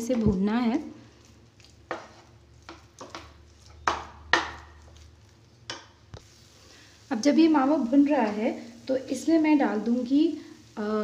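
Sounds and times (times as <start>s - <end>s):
wooden spatula scraping a pan: 1.0s - 6.7s.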